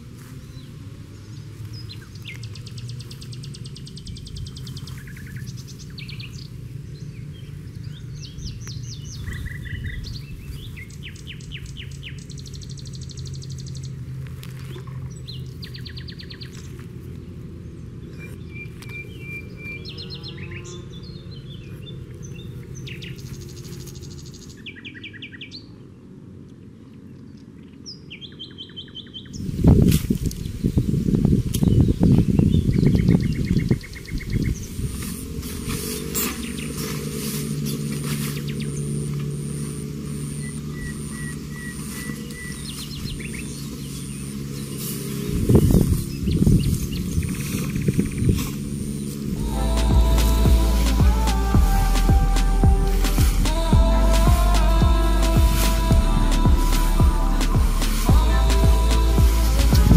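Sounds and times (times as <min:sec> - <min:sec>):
songbirds chirping: 0:00.0 - 0:59.9
steady low rumble: 0:45.3 - 0:59.9.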